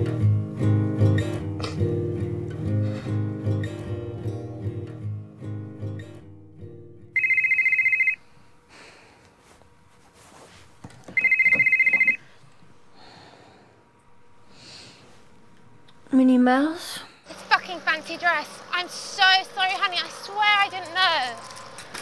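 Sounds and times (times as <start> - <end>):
mobile phone ringtone trill: 7.2 - 8.2, 11.2 - 12.2.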